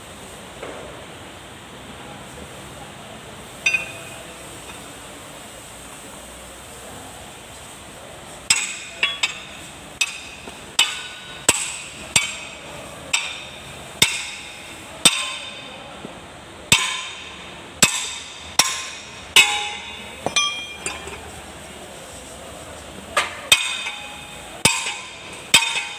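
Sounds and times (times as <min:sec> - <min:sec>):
wrench clanking on metal: 0:03.6 - 0:04.8, 0:08.5 - 0:15.7, 0:16.7 - 0:21.6, 0:23.2 - 0:25.9.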